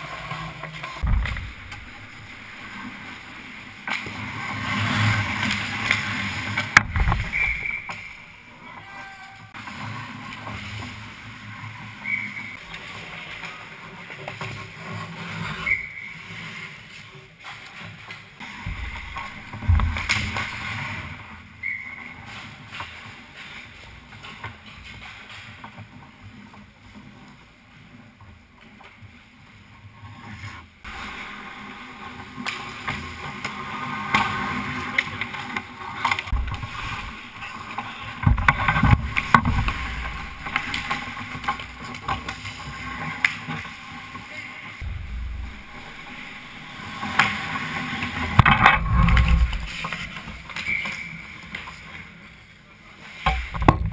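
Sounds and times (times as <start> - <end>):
sticks and puck clacking: 0.0 - 29.1, 30.9 - 53.9
skates scraping on ice: 0.0 - 53.9
heavy low thumps: 1.0 - 2.1, 18.7 - 20.0, 44.8 - 46.8.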